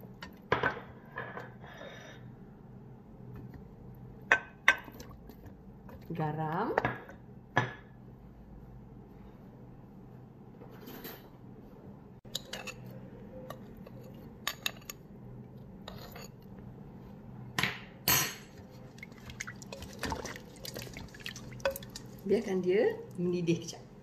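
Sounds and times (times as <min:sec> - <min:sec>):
spatula stirring sloshing broth: 0:18.5 - 0:22.6.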